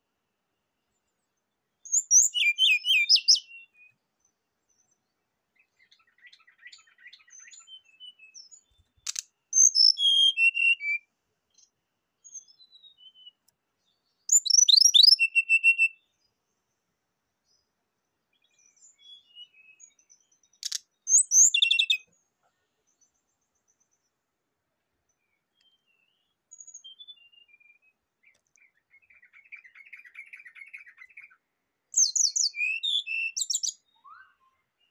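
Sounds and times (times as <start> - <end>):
bird chirps: 0.9 - 16.4, 18.3 - 24.2, 25.1 - 34.9
bird singing whistled phrases: 1.8 - 3.9, 9.5 - 11.1, 14.3 - 16.1, 21.1 - 22.1, 25.6 - 28.0, 32.0 - 34.9
sharp click: 9.0 - 9.3, 20.6 - 20.8.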